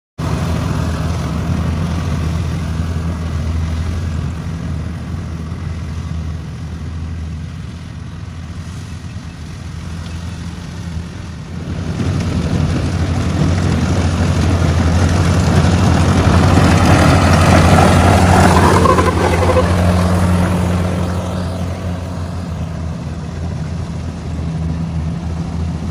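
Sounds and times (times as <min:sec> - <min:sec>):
combine harvester engine hum: 0:00.2 - 0:25.9
machinery rattling: 0:09.7 - 0:24.7.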